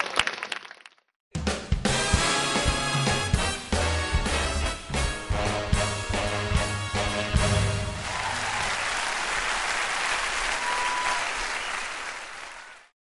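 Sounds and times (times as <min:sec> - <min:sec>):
audience applauding: 0:00.0 - 0:01.0, 0:07.9 - 0:13.0
brass band chord: 0:01.4 - 0:08.0.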